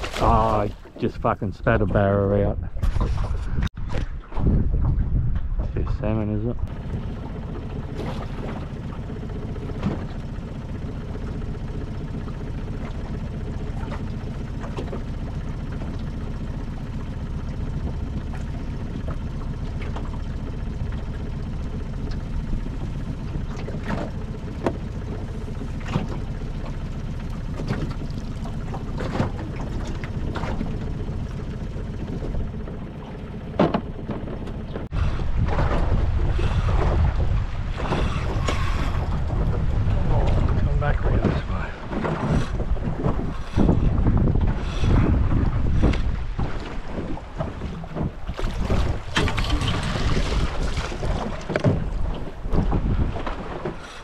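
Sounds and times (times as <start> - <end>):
water splashes: 0.0 - 2.1, 6.6 - 54.0
low rumble of wind and water: 0.0 - 54.0
knocks on boat: 7.5 - 10.3, 23.0 - 26.8, 27.4 - 53.9
net hauled into metal boat: 45.9 - 53.9.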